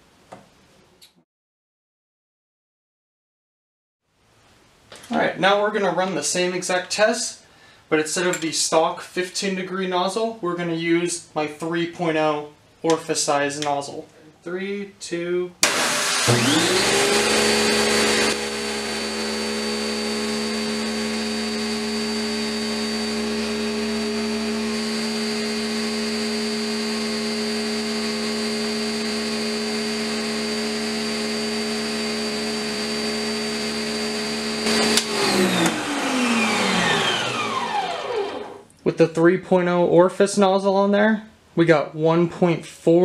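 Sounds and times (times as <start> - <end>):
pressure washer motor whine: 15.6 - 38.6
clicks: 34.7 - 35.8.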